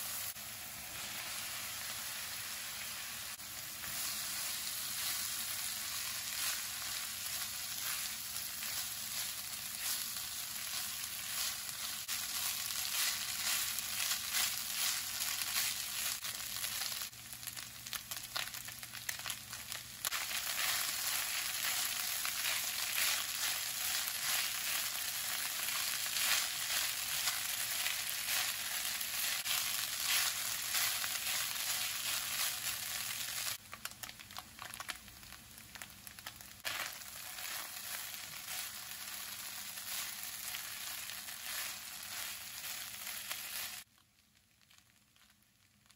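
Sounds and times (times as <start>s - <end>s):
food sizzling in a wok: 0.0s - 43.9s
spatula scraping and tossing: 3.3s - 17.1s, 20.0s - 33.6s, 36.6s - 43.9s.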